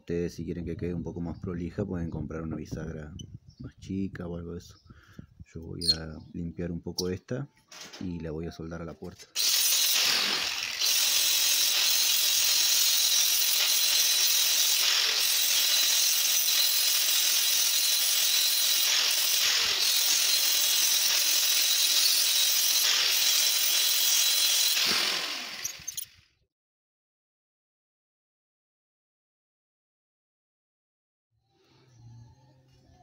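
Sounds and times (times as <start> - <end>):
angle grinder grinding rusty steel: 9.3 - 26.2.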